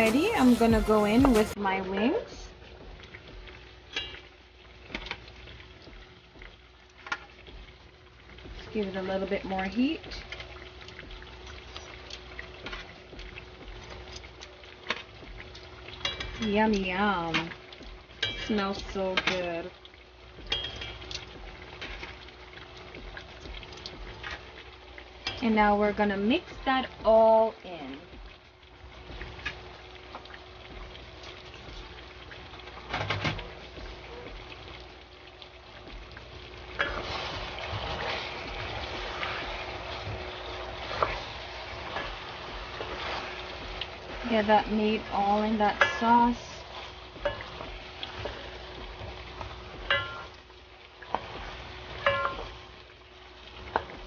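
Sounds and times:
sauce bubbling and sizzling: 0.0 - 54.0
tongs clicking on metal pan: 16.0 - 17.6, 18.2 - 18.6, 20.5 - 21.3, 45.7 - 46.1, 47.2 - 47.7, 49.9 - 50.4, 52.0 - 52.5
spatula stirring and scraping: 35.8 - 52.9.

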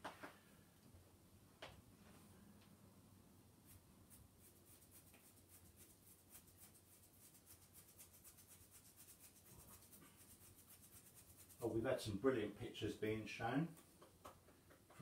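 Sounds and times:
paintbrush dabbing on paper: 3.6 - 11.7.

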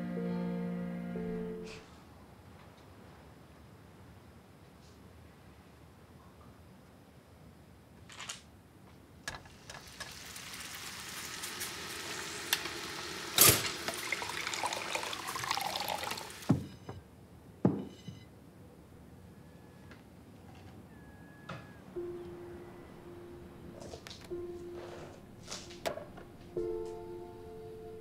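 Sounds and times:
tap water filling a vessel: 9.6 - 16.6.

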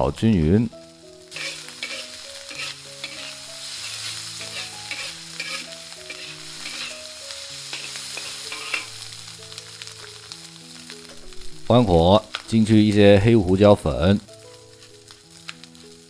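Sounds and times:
rice sizzling in a pan: 0.2 - 16.0
spatula scraping and knocking pan: 1.4 - 7.0.

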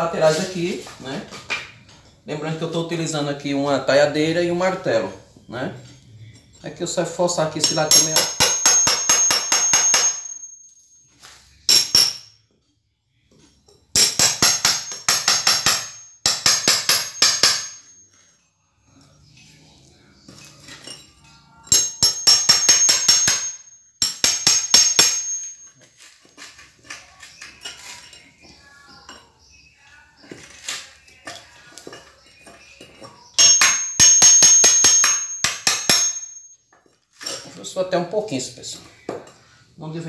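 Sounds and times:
hammer striking metal chisel: 7.5 - 10.7, 11.7 - 12.3, 13.9 - 18.0, 21.7 - 25.7, 32.0 - 37.0.

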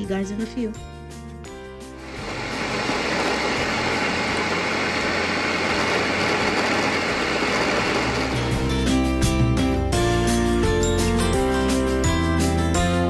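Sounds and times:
blender running: 1.9 - 8.8.

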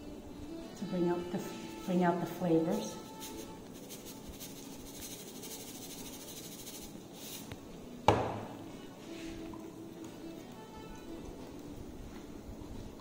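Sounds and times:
salt shaken into glass bowl: 2.8 - 7.5
fork stirring in bowl: 3.0 - 7.5
canister knock on wooden table: 8.1 - 8.5.

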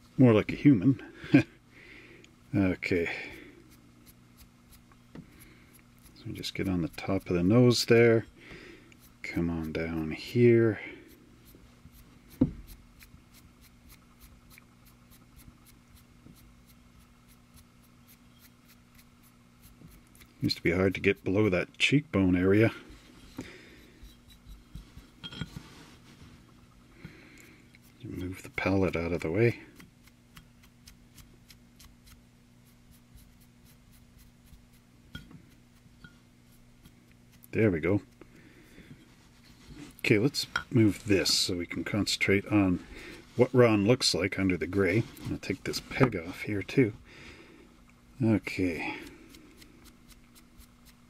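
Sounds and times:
steady low hum: 0.0 - 51.0
paintbrush scratching: 3.2 - 8.3, 9.0 - 21.4, 27.8 - 38.2, 49.0 - 51.0.

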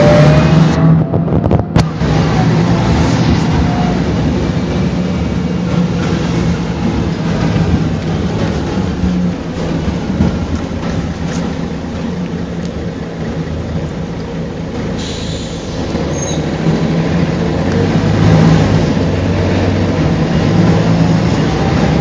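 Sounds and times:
bus diesel engine drone: 0.0 - 22.0.

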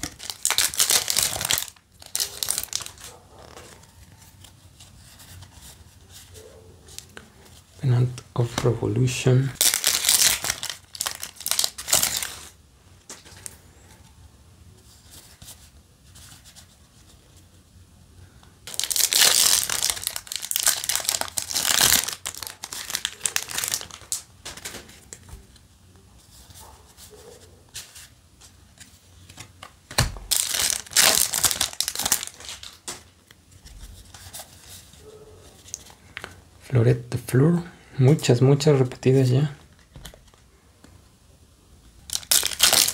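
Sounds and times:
foil wrappers crinkling and tearing: 0.0 - 4.5, 8.4 - 13.6, 18.6 - 25.1, 30.2 - 33.2, 42.0 - 42.9.

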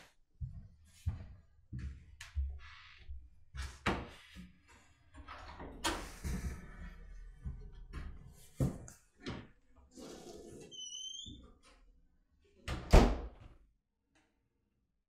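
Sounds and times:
footsteps on wooden floor: 0.4 - 3.2.

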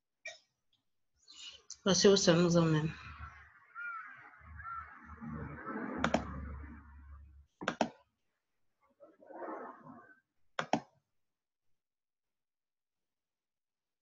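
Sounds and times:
computer mouse clicking: 6.0 - 6.3, 7.6 - 8.0, 10.6 - 10.9.

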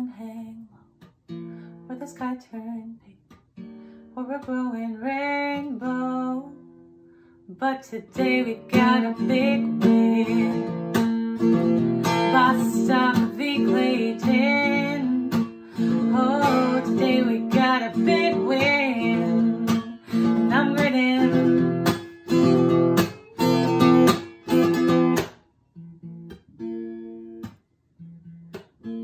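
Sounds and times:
woman singing: 0.0 - 0.8, 1.9 - 3.2, 4.1 - 6.6, 7.5 - 11.0, 12.0 - 22.0
acoustic guitar strumming: 8.0 - 29.0.

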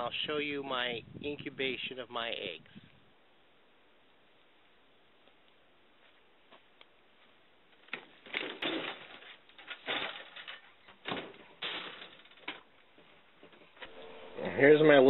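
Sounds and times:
person climbing in: 7.7 - 13.8.

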